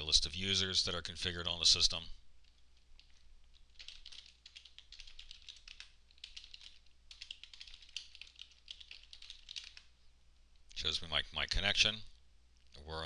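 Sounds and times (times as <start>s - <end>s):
low steady hum: 0.0s - 13.0s
computer keyboard typing: 3.0s - 9.9s.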